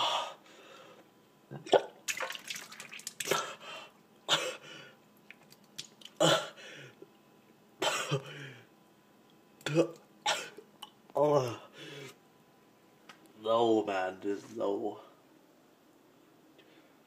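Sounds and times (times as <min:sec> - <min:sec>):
quiet breaths: 0:00.0 - 0:01.2, 0:11.4 - 0:12.3, 0:16.5 - 0:17.0
man coughing and gagging: 0:04.3 - 0:04.6, 0:06.2 - 0:06.6, 0:07.8 - 0:08.4, 0:09.7 - 0:10.6.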